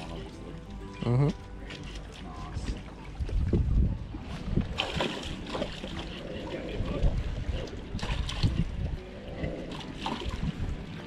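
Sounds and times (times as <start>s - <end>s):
water noise: 0.0s - 11.0s
wind gusting on microphone: 2.6s - 11.0s.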